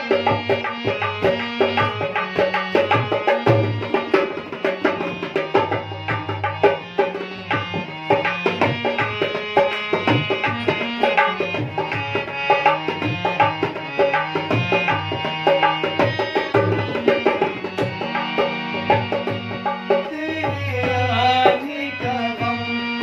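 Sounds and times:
harmonium melody: 0.0 - 23.0.

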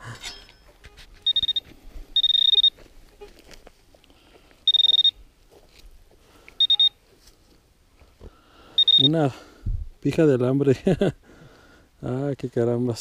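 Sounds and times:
pinpointer high-pitched electronic tone: 0.4 - 3.3, 4.7 - 5.2, 6.6 - 7.0, 8.8 - 9.2.

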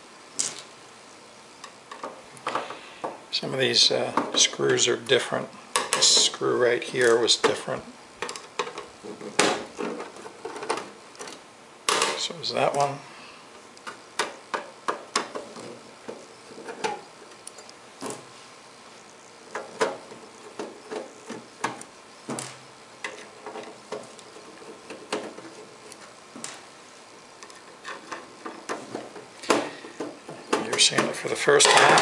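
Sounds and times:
screws set down on wood: 27.9 - 32.0.

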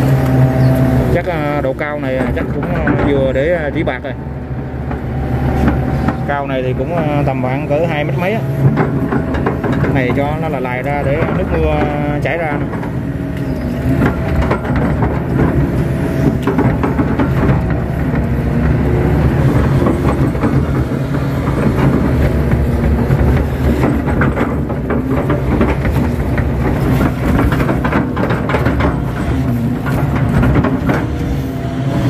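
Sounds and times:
excavator clattering: 0.0 - 32.0
excavator diesel engine and hydraulics: 0.0 - 32.0.

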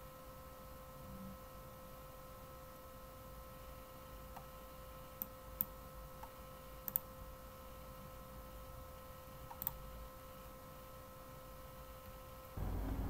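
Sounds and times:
faint steady hum: 0.0 - 13.0
computer mouse clicks: 5.2 - 7.1, 9.5 - 9.8.

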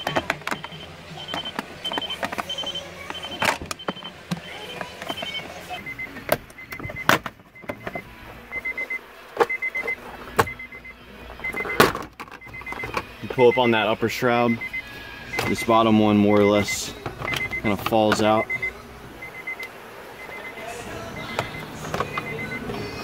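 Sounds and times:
short electronic beeps: 0.0 - 11.8, 14.5 - 15.8, 21.2 - 22.6.

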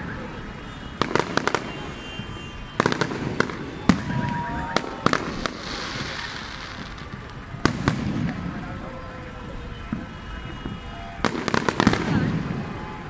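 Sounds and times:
fireworks bangs: 0.0 - 13.0
high hiss: 4.4 - 8.6.

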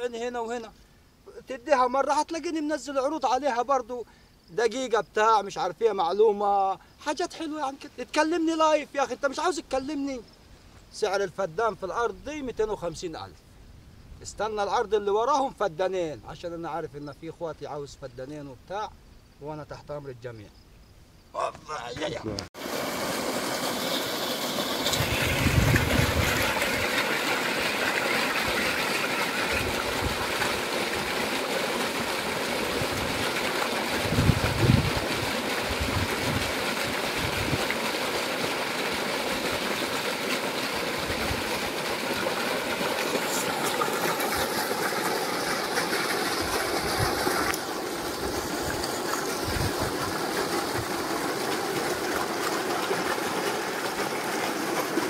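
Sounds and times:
water gushing from pipe: 22.6 - 55.0.

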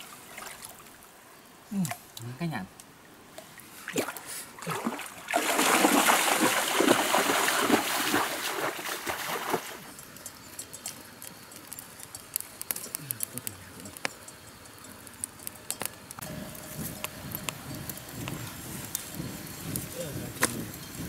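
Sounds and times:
water splashing in stream: 0.0 - 1.1, 3.3 - 9.9
faint scattered ticks: 9.8 - 21.0.

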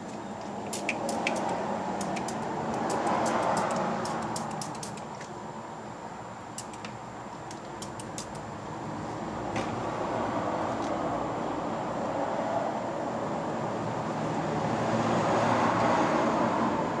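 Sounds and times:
steady background noise: 0.0 - 17.0
ratchet wrench clicking: 0.6 - 5.3, 6.6 - 8.5.

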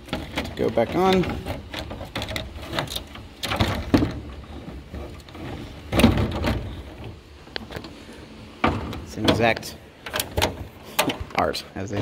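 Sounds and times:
plastic scraping and knocking: 0.0 - 7.9.

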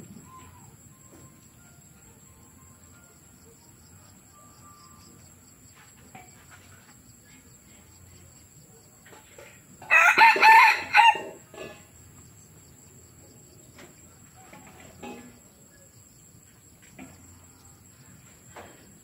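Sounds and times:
rooster crowing: 9.8 - 11.4.

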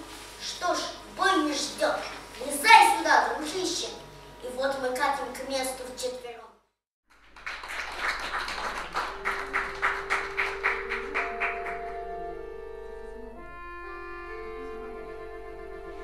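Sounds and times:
button accordion chords: 9.1 - 16.0.

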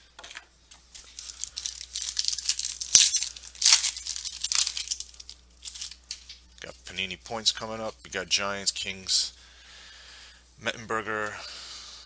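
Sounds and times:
foil wrapper tearing and crinkling: 0.9 - 6.4.

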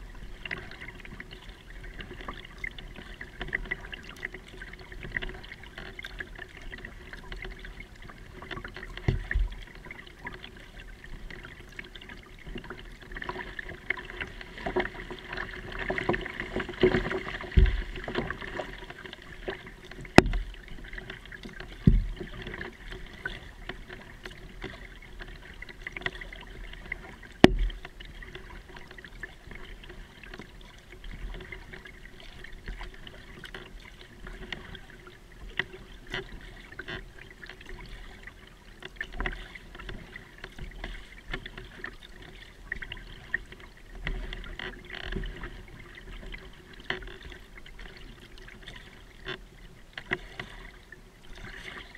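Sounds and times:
paddle splashing water: 0.0 - 51.9
knocks on plastic kayak: 16.9 - 17.9, 20.1 - 20.4.

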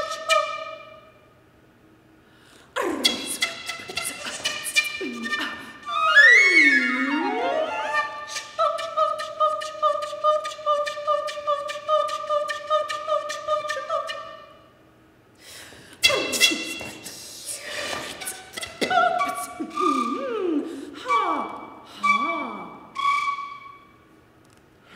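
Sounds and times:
flute: 2.9 - 14.6, 18.2 - 24.0
soprano voice singing: 5.1 - 14.4.

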